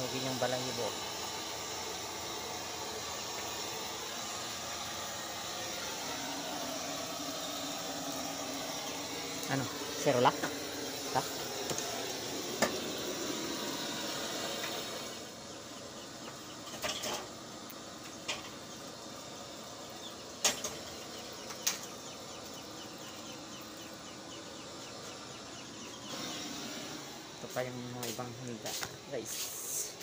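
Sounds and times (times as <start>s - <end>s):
gas flame hissing: 0.0s - 30.0s
knocks and clatters on grill: 12.5s - 13.0s, 16.2s - 18.7s, 20.4s - 22.0s.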